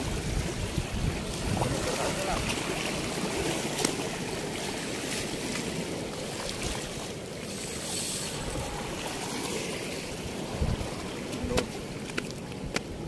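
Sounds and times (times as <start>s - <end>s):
wind buffeting microphone: 0.0s - 4.5s, 8.3s - 13.0s
floodwater rushing through sluice gate: 0.0s - 13.0s.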